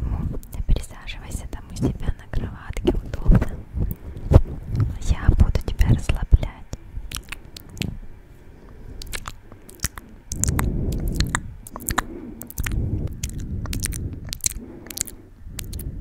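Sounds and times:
low muffled rumble: 0.0 - 16.0
lip and tongue clicks: 7.1 - 8.0, 8.7 - 16.0.

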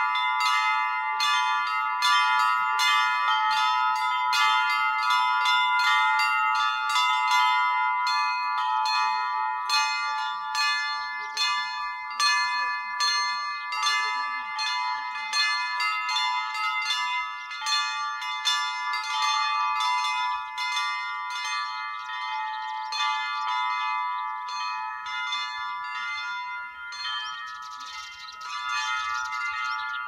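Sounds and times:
large bells ringing chord: 0.0 - 30.0
small bells struck rhythmically: 0.0 - 30.0.

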